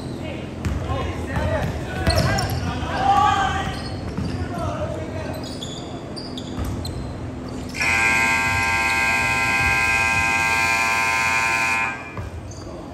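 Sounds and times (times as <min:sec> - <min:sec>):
scoreboard buzzer: 0:07.8 - 0:12.3.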